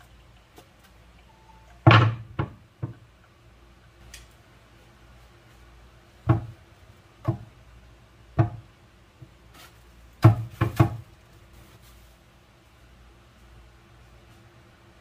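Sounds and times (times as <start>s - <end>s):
knocks on wooden chopping board: 6.3s - 6.5s, 8.4s - 8.6s.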